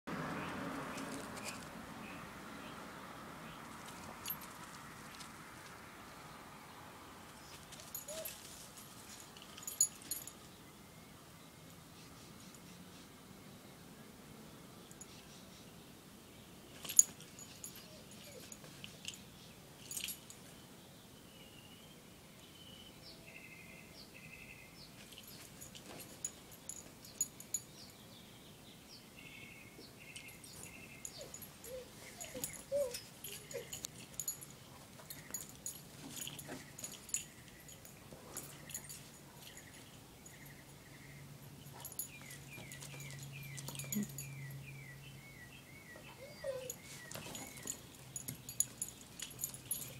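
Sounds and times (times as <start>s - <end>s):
small birds chirping: 14.8s - 49.9s
dog whining: 17.7s - 18.6s, 31.0s - 34.4s, 46.1s - 47.7s.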